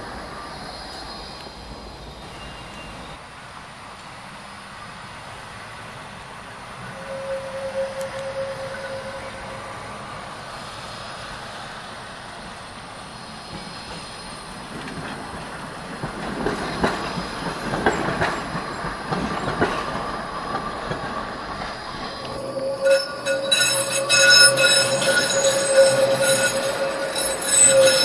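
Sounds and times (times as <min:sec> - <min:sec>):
tram rolling rumble: 0:00.0 - 0:28.0
thin wheel squeal: 0:06.9 - 0:10.0, 0:22.1 - 0:28.0
wheels clacking over rail joints: 0:13.4 - 0:28.0.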